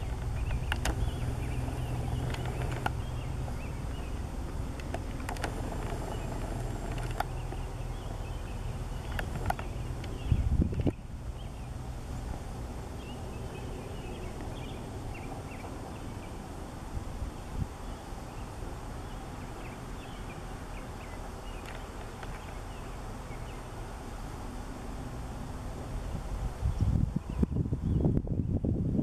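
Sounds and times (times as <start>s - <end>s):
steady low rumble: 0.0s - 29.0s
soft clicks: 0.1s - 3.0s, 4.1s - 7.7s, 9.0s - 11.0s.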